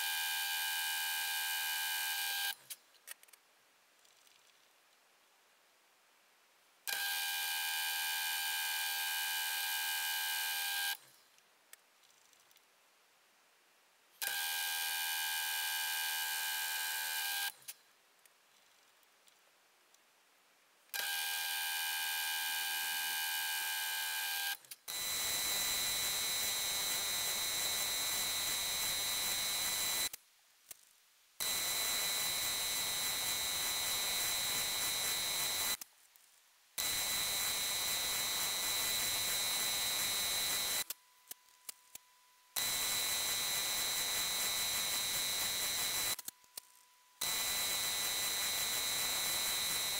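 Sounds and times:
milling machine drilling whine: 21.0 - 30.1, 31.4 - 35.8, 36.8 - 40.9, 42.6 - 46.2, 47.2 - 49.9.

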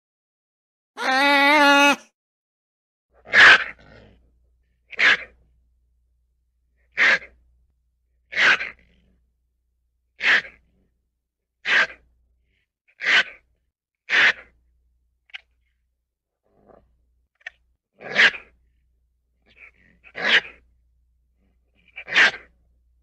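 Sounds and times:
ferret making breathy sounds: 6.9 - 7.4, 10.2 - 10.9, 11.6 - 13.4, 14.1 - 14.5, 19.4 - 20.6, 21.4 - 22.6.

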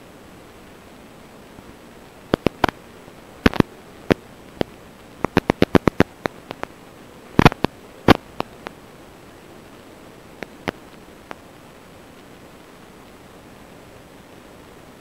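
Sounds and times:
static hiss: 0.0 - 15.0
sharp clicks and crackles: 2.2 - 8.8, 10.4 - 11.4.

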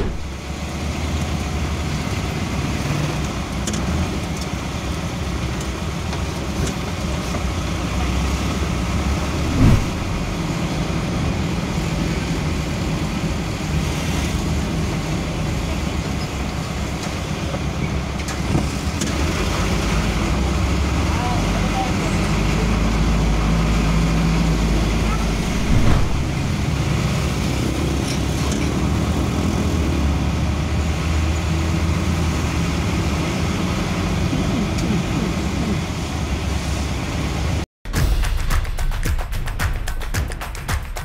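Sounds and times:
loud thump: 0.0 - 0.4, 9.2 - 10.4, 25.2 - 26.8
vehicle engine and road noise: 0.0 - 37.6
surrounding traffic: 0.0 - 37.7.

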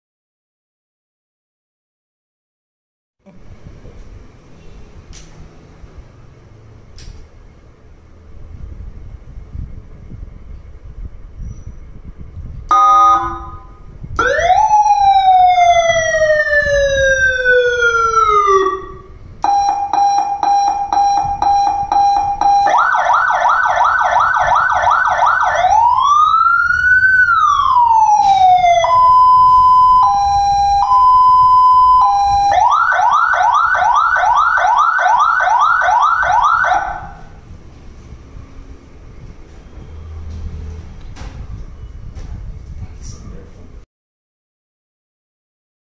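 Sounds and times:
electronic siren tones: 12.7 - 37.4.

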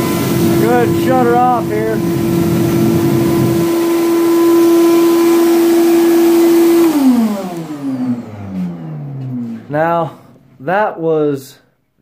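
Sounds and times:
gas burner roar: 0.0 - 10.6
air blower hum: 0.0 - 10.9.

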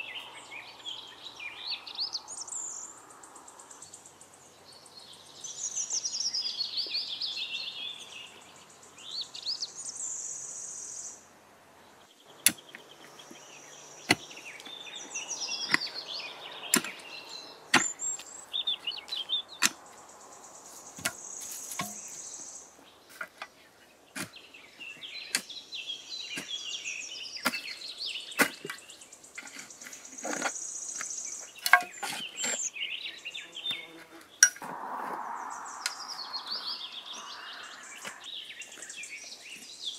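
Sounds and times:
birds chirping and trilling: 0.0 - 39.9
hoe chopping into dry soil: 12.4 - 13.4, 14.0 - 14.8, 16.6 - 18.4, 21.0 - 22.3, 24.2 - 24.5, 27.4 - 30.6.

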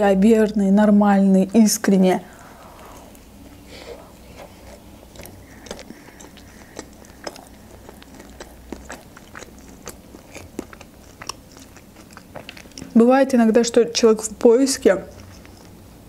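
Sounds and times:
person chewing: 2.3 - 13.0, 15.0 - 16.0
mouth clicks: 4.6 - 12.9.

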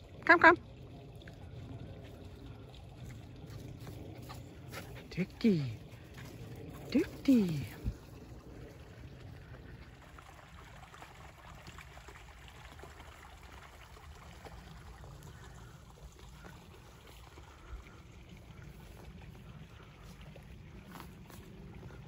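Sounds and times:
low steady rumble: 0.0 - 22.0
footsteps through dry grass: 20.0 - 22.0.

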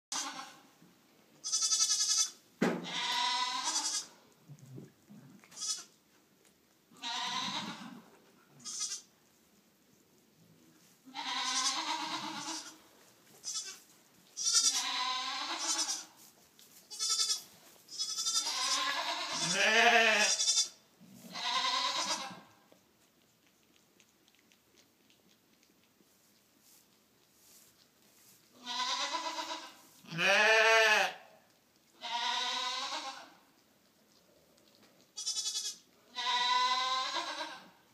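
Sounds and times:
sheep bleating: 1.4 - 4.2, 5.5 - 5.9, 7.0 - 8.0, 8.6 - 9.1, 11.1 - 12.8, 14.4 - 16.1, 16.9 - 22.5, 28.6 - 31.2, 32.0 - 33.4, 35.2 - 37.8.

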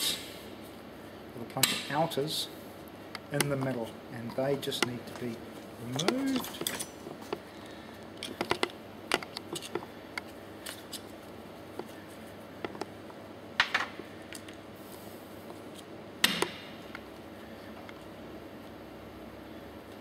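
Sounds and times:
hand tool scraping metal parts: 5.2 - 6.9.

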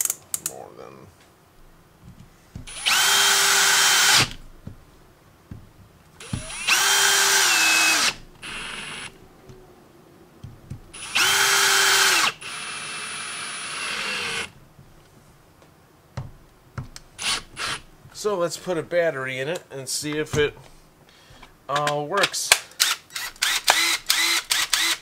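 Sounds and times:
cordless drill driving screws: 2.7 - 4.4, 6.2 - 9.1, 11.0 - 14.6, 17.2 - 17.9, 22.8 - 25.0.

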